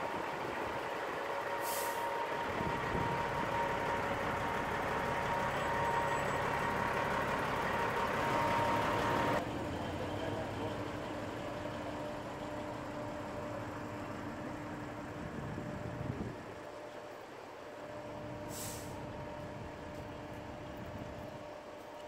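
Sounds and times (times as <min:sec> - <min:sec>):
heavy diesel engines running: 0:00.0 - 0:22.0
air hiss: 0:18.5 - 0:19.0.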